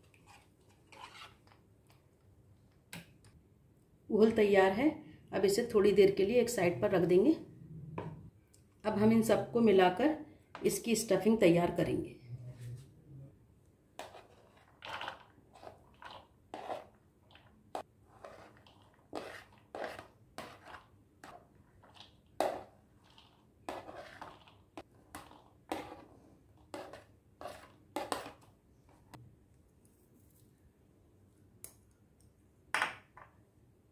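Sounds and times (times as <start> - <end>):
spoon scraping plastic plate: 0.0 - 1.6, 14.0 - 29.2.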